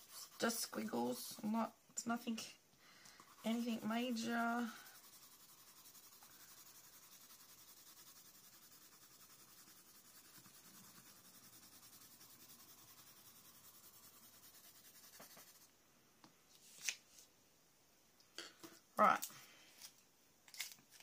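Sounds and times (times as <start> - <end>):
pencil scratching on paper: 0.0 - 1.7, 3.2 - 15.7.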